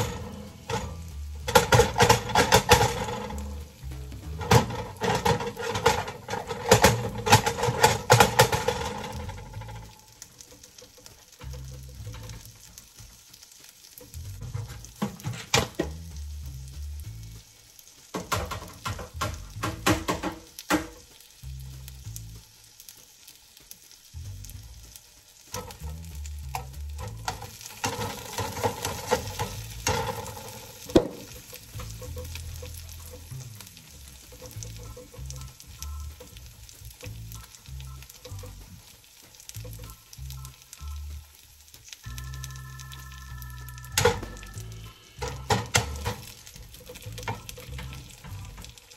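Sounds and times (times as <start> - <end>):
utensil clattering against pan: 0.0 - 12.7, 14.0 - 16.0, 18.1 - 21.1, 26.5 - 36.4, 45.2 - 48.8
food sizzling in a pan: 0.0 - 48.9.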